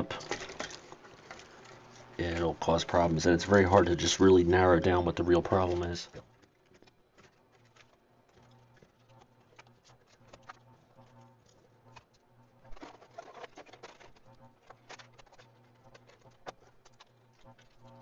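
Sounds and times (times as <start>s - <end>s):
parts clicking and rattling: 0.0s - 2.5s
faint low hum: 0.0s - 18.0s.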